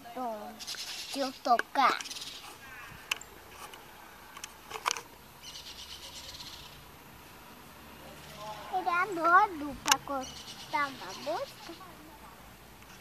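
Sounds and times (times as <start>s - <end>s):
faint bird chirps: 0.5s - 1.4s, 2.0s - 3.4s, 5.4s - 6.9s, 10.1s - 12.0s
sharp clicks: 0.7s - 5.1s.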